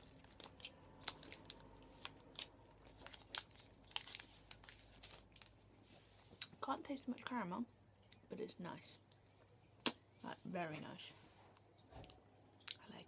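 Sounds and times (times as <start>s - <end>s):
plastic wrapper crinkling: 0.0s - 5.6s.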